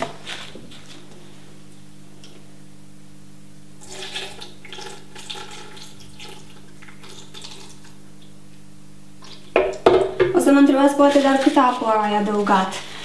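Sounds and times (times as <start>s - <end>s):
steady low hum: 0.0s - 13.0s
water pouring and splashing: 3.8s - 8.0s.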